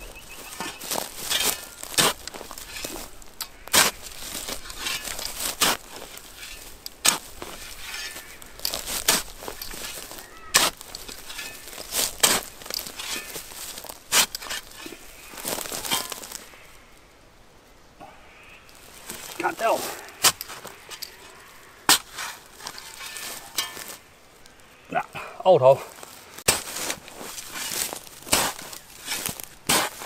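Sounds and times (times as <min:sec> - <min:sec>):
shovel striking soil: 0:00.0 - 0:16.4, 0:19.0 - 0:24.1, 0:26.4 - 0:30.0
dirt scraping and crunching: 0:00.0 - 0:17.1, 0:18.0 - 0:30.0.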